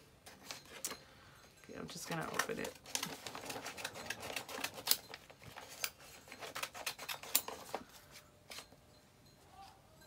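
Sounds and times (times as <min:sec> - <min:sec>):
wrapping paper crinkling and tearing: 0:02.3 - 0:08.6.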